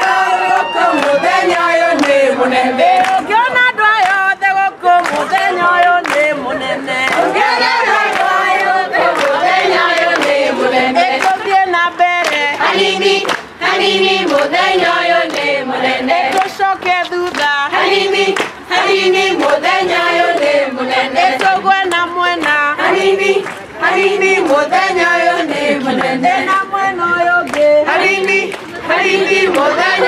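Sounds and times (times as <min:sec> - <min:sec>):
group of people singing: 0:00.0 - 0:30.0
hand-clapping: 0:01.9 - 0:02.2, 0:02.9 - 0:06.4, 0:07.0 - 0:15.6, 0:16.3 - 0:20.6, 0:21.2 - 0:24.6, 0:27.4 - 0:30.0.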